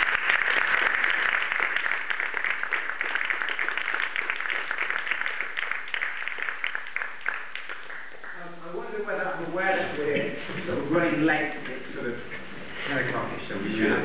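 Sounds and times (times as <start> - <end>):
small audience applauding: 0.0 - 8.9.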